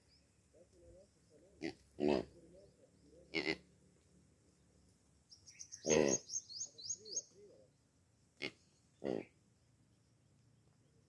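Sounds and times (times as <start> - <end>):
small bird high chirps: 5.3 - 7.4
antelope low calls: 5.5 - 7.8, 8.4 - 9.4.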